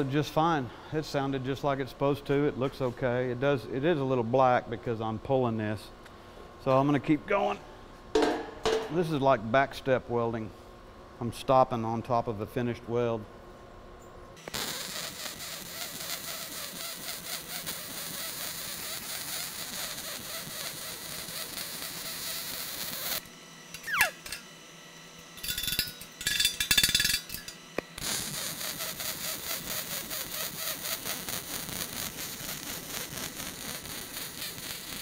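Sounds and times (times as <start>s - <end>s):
welding arc crackling: 14.4s - 24.4s, 25.4s - 35.0s
short squeak: 23.8s - 24.4s
sharp metallic clinks: 25.4s - 27.6s.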